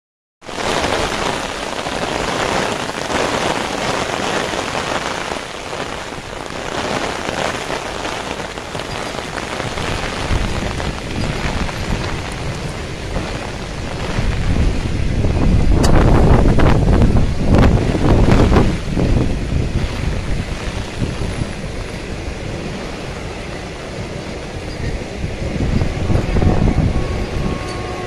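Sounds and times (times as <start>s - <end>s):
heavy rain on an umbrella: 0.4s - 28.0s
low rumble: 9.6s - 28.0s.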